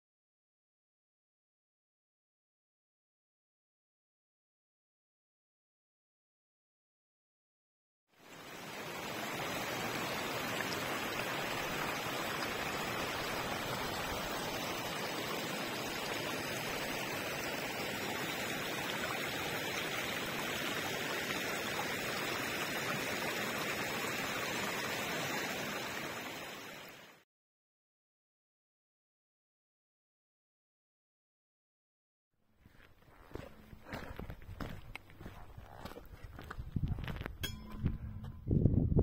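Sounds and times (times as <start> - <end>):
water gurgling in rocky stream: 8.6 - 27.0.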